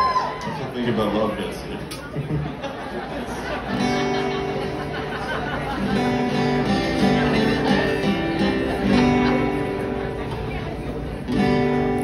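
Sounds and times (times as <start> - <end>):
guitar strumming chords: 3.8 - 12.0.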